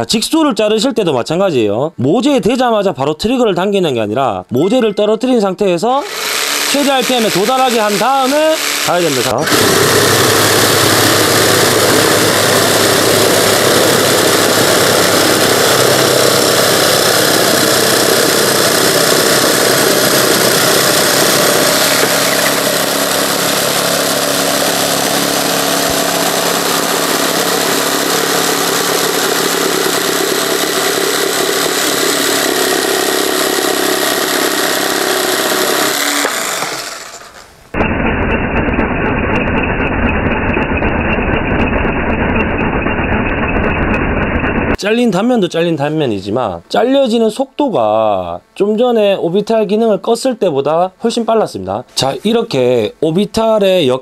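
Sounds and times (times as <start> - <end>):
jigsaw cutting wood: 6.0 - 44.6.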